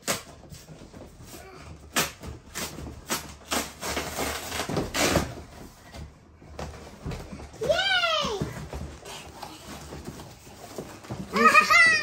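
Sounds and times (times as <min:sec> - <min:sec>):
cardboard tearing: 0:01.9 - 0:05.4.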